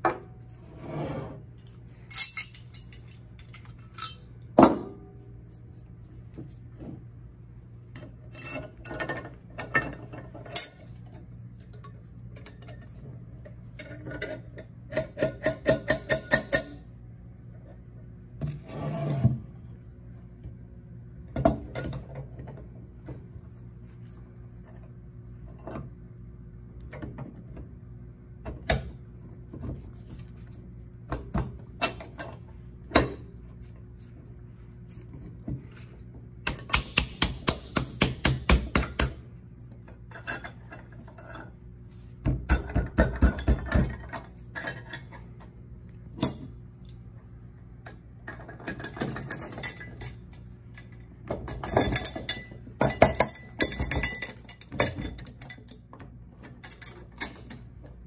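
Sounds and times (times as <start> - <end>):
low steady hum: 0.0 - 58.0
metal clinks and clicks: 2.0 - 4.3.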